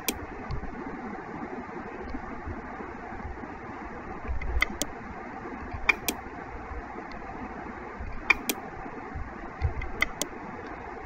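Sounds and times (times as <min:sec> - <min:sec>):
computer mouse double-clicks: 0:00.0 - 0:00.2, 0:04.4 - 0:04.9, 0:05.8 - 0:06.2, 0:08.1 - 0:08.6, 0:09.7 - 0:10.3
steady background hum: 0:00.0 - 0:11.0.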